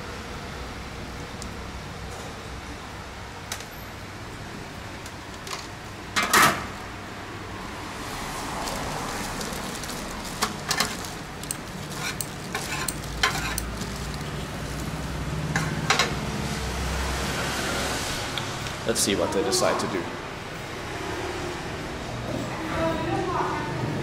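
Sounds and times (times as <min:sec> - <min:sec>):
metal utensils clinking on pots: 0:10.4 - 0:14.3.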